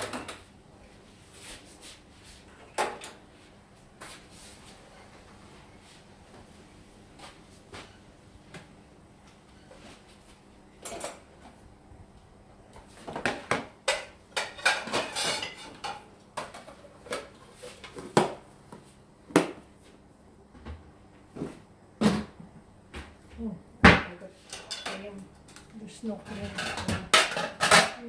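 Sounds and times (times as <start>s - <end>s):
dishes clattering and clinking: 0.0s - 0.4s, 2.6s - 3.2s, 10.8s - 11.3s, 13.1s - 17.3s, 24.4s - 25.6s, 26.2s - 28.0s.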